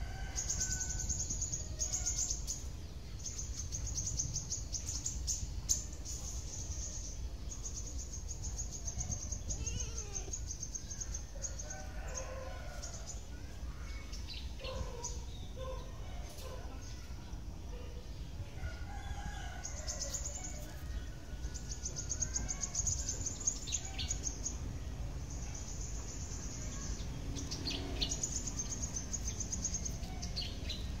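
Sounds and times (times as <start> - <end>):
birds chirping: 0.2 - 17.8
rooster crowing: 11.4 - 13.0.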